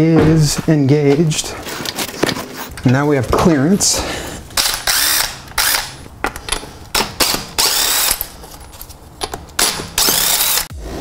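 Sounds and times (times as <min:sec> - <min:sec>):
impact wrench spinning: 0:04.6 - 0:08.3, 0:09.3 - 0:10.8.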